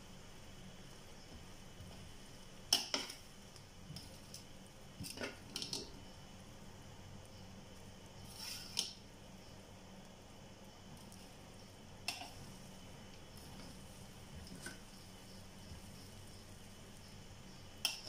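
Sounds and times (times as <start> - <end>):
rice squishing: 0.1 - 18.0
metal utensil scraping a pot: 8.2 - 9.0.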